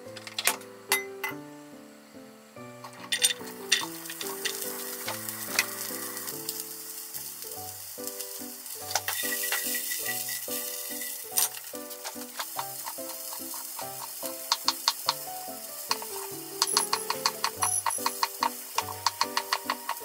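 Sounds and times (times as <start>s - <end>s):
background music: 0.0s - 20.0s
vegetables sizzling in oil: 2.7s - 20.0s
pan clatter: 2.8s - 6.6s, 8.1s - 20.0s.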